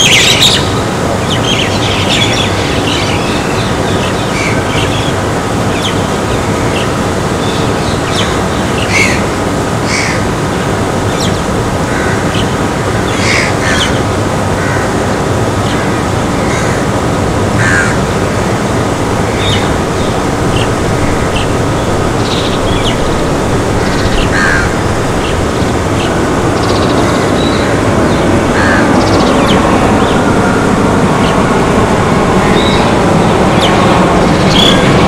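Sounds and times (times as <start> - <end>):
jet airliner engines roaring: 0.0 - 35.0
crows cawing: 4.3 - 5.0, 8.8 - 10.4, 11.8 - 16.9, 17.5 - 30.8.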